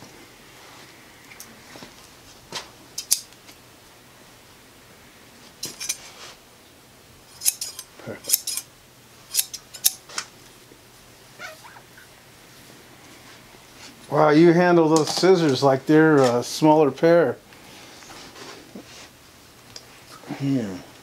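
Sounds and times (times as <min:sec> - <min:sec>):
scissors snipping hair: 0:07.4 - 0:08.6, 0:09.3 - 0:10.0.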